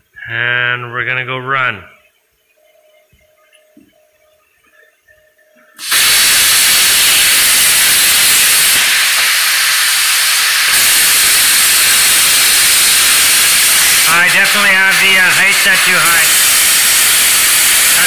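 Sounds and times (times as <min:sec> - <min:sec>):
plasma cutter hissing: 0:05.8 - 0:18.0.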